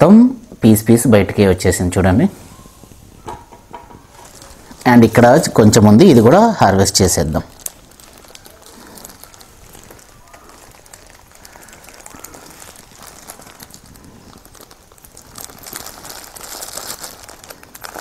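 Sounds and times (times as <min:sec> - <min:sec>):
plastic bag crinkling: 0:03.9 - 0:18.0.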